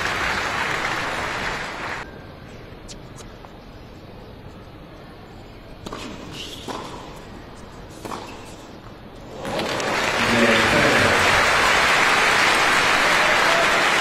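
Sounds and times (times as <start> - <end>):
crowd applause: 0.0 - 2.0, 9.4 - 14.0.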